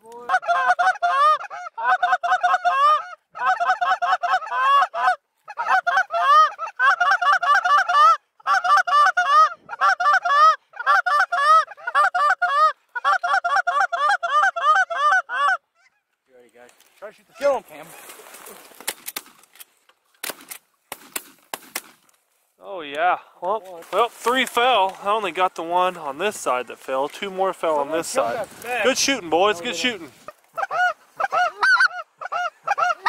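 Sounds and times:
goose honks and clucks: 0.1 - 16.2, 28.8 - 33.0.

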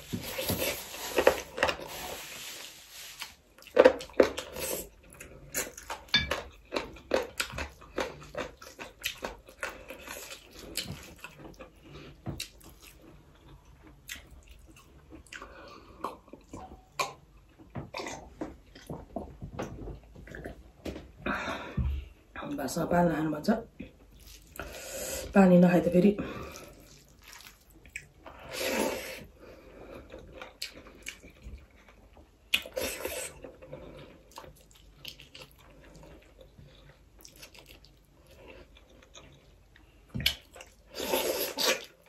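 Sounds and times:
person chewing with wet smacks: 3.2 - 20.6, 26.6 - 28.4, 30.0 - 42.0.

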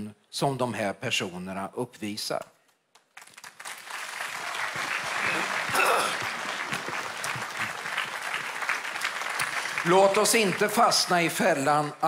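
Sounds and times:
large audience applauding: 3.0 - 12.0.

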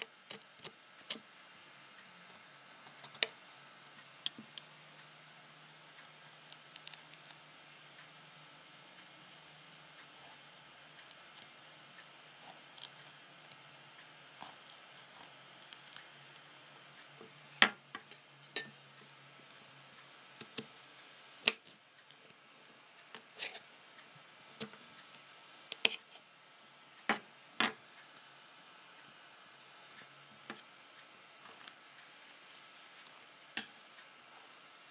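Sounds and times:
knife cutting cucumber: 14.4 - 16.0, 20.4 - 22.3.

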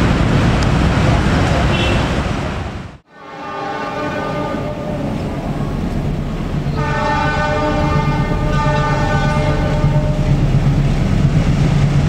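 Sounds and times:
train air horn blasting: 1.7 - 2.1, 3.1 - 5.9, 6.6 - 10.5
diesel engine rumble: 4.7 - 12.0.

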